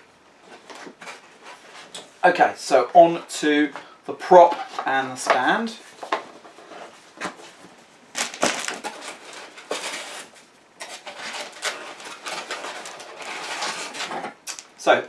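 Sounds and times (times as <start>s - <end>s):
packaging rustling and crackling: 6.2s - 14.7s.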